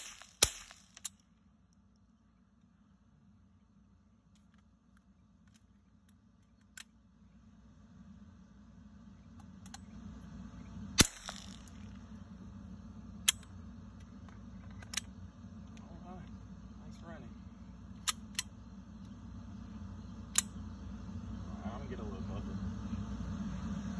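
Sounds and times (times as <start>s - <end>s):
sharp cracks: 0.0s - 1.2s, 11.0s - 11.8s.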